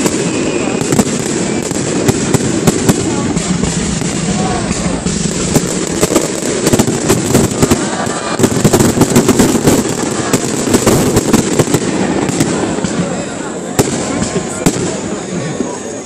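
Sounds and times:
fireworks bangs and crackles: 0.0s - 16.0s.

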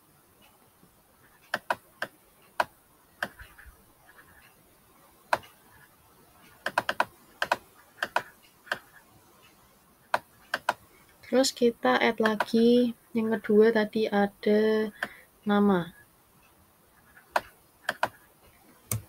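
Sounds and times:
computer mouse clicks: 1.2s - 4.5s, 5.3s - 10.8s, 12.2s - 12.6s, 14.9s - 15.2s, 16.4s - 18.3s
keyboard clicks: 1.5s - 3.6s, 6.5s - 8.9s, 10.1s - 10.8s, 12.2s - 12.6s, 14.9s - 15.2s, 17.1s - 18.2s.

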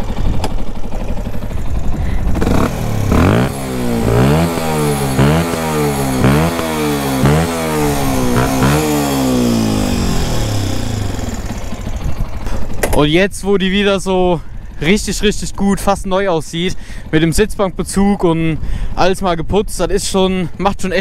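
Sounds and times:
motorcycle engine revving: 0.0s - 13.2s.

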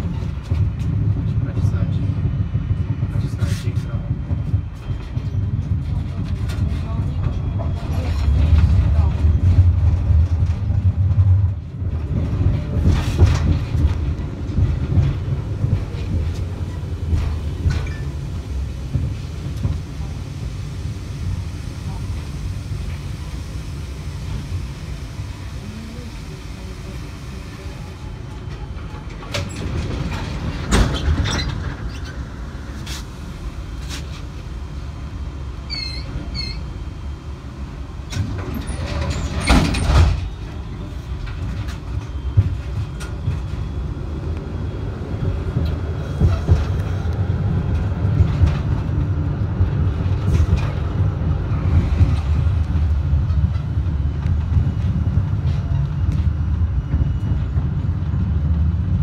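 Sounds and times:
passing tram clatter: 0.0s - 59.0s
tram wheels and motors rumbling: 0.0s - 59.0s
wheels clanking over rail joints: 4.4s - 20.1s, 28.1s - 34.4s, 37.9s - 57.8s.

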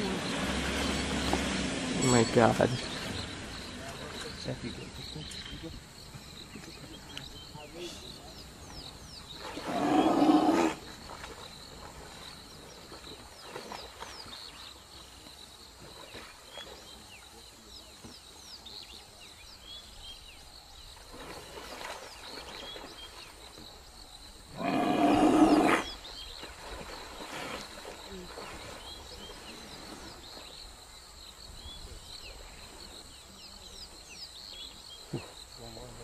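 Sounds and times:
lions growling: 24.5s - 25.9s.

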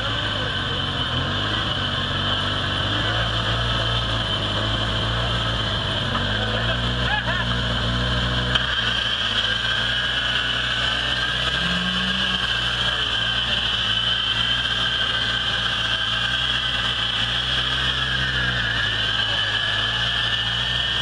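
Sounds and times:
car engine running at low revs: 0.0s - 21.0s
high whine: 0.0s - 21.0s.

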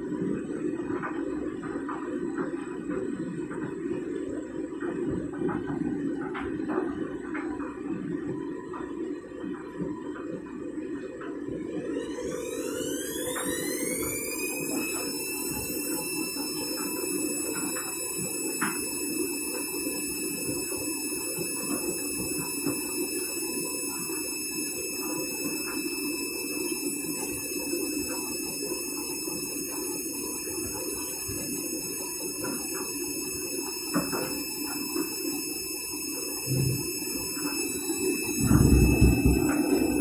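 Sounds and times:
washing machine motor whine: 0.0s - 40.0s
drum rumble: 38.3s - 40.0s.

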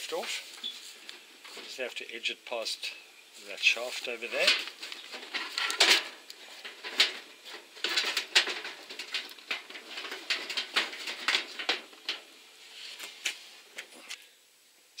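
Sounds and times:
sheet metal cover clanking and scraping: 4.1s - 12.3s.

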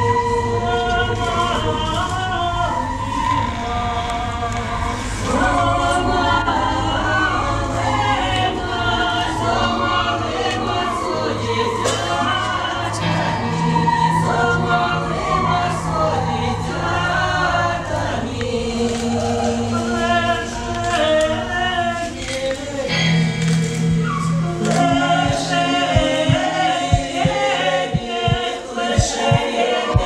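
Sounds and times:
choir singing: 0.0s - 30.0s
steady low hum: 20.2s - 30.0s
held low tone: 22.9s - 28.4s, 29.0s - 29.4s.

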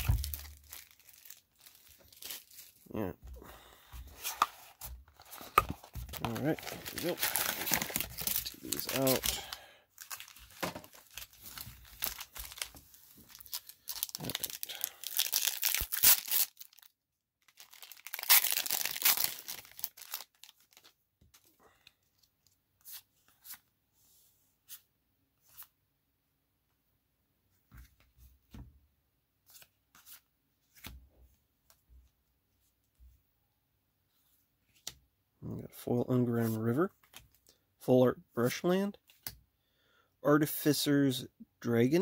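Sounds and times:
plastic wrapper crinkling and tearing: 0.0s - 3.0s, 5.2s - 21.5s.

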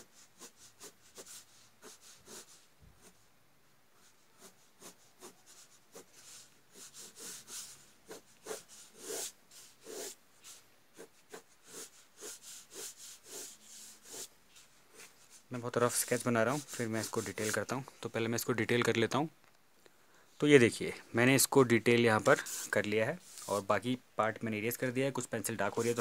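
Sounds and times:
pencil scratching on paper: 0.0s - 3.2s, 4.0s - 17.7s, 25.6s - 26.0s.

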